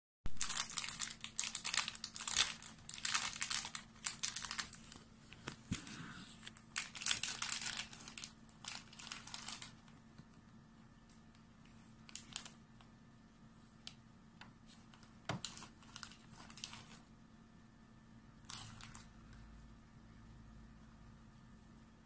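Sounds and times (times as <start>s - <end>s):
plastic packet crinkling: 0.3s - 5.7s, 6.4s - 10.0s, 11.6s - 12.6s, 14.7s - 17.1s, 18.4s - 19.1s.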